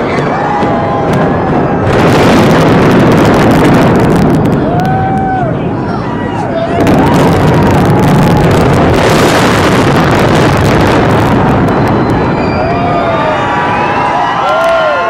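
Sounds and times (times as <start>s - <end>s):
spectators shouting: 0.0s - 2.8s, 4.4s - 8.7s, 11.0s - 15.0s
building collapse rumble: 0.0s - 15.0s.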